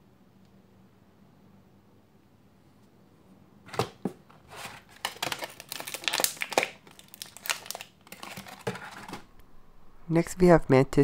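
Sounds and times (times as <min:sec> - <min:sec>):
plastic packaging crinkling and clicking: 0:03.7 - 0:09.3.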